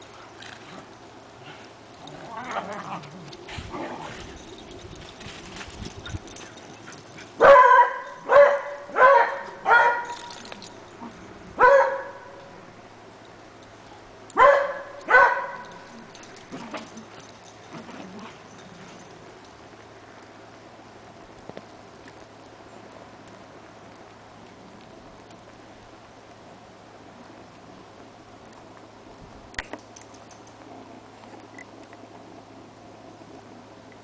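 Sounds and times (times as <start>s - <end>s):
dog barking: 7.4s - 10.1s, 11.6s - 12.4s, 14.4s - 15.8s.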